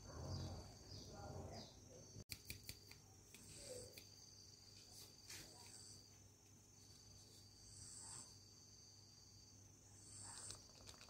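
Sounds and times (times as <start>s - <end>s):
insect trilling: 7.5s - 11.0s.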